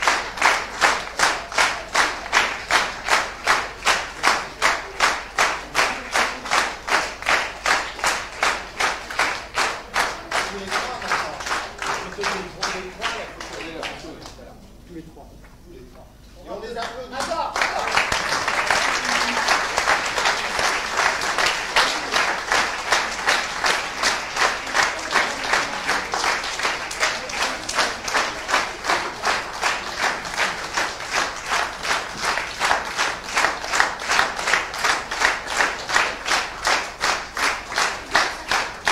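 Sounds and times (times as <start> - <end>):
audience applauding: 0.0 - 14.4, 16.8 - 38.9
rhythmic clapping in unison: 0.0 - 14.5, 16.6 - 38.9.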